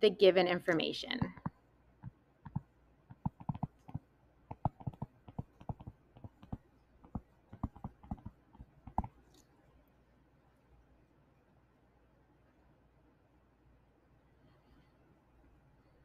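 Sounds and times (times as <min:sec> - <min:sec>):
stylus tapping on tablet screen: 0:01.2 - 0:09.4.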